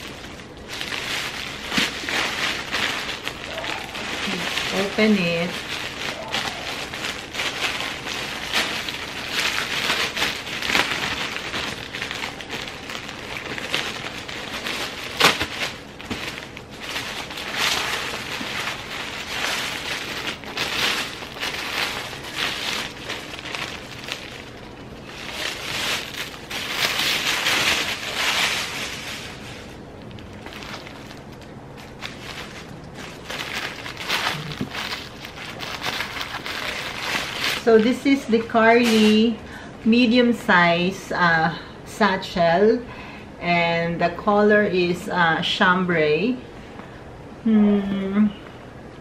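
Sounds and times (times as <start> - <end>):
plastic bag snapping: 0.0 - 38.0, 38.8 - 39.3
plastic bag crinkling: 0.0 - 40.2.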